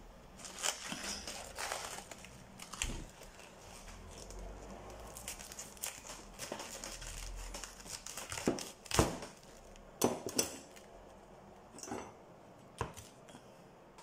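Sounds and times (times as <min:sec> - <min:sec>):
cabbage leaves tearing: 0:00.4 - 0:09.8.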